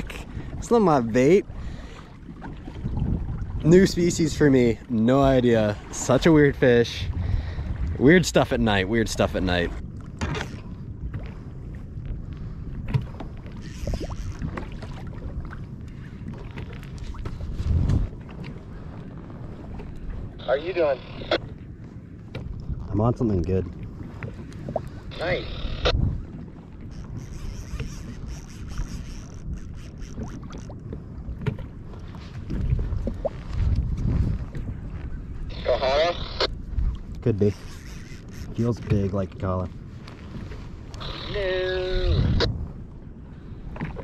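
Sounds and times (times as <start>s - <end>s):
water sloshing against hull: 0.0s - 44.0s
wind rumbling on microphone: 0.0s - 44.0s
light knocks against hull: 30.2s - 31.7s.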